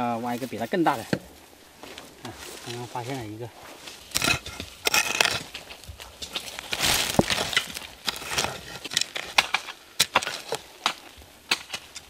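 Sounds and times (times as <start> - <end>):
earth scraping and crumbling: 0.0 - 12.0
hoe chopping into soil: 4.1 - 12.0.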